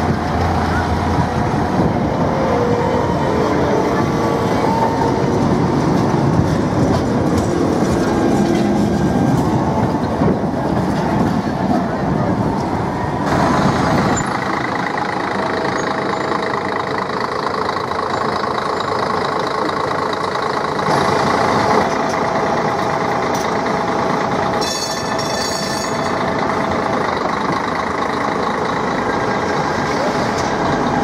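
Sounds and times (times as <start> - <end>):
electric tram hum: 0.0 - 31.0
street traffic noise: 0.0 - 31.0
high-pitched squeal: 24.5 - 26.5.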